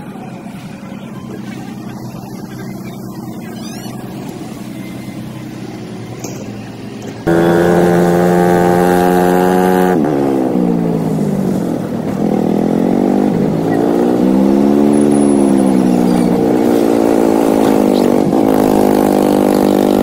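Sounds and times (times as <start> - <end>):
boat motor running: 0.0 - 9.9
motor tricycle engine revving: 0.0 - 20.0.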